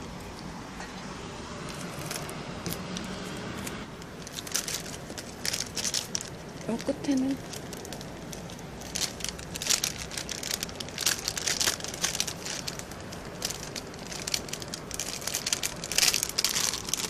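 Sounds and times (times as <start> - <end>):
plastic sheeting crinkling: 1.6 - 17.0.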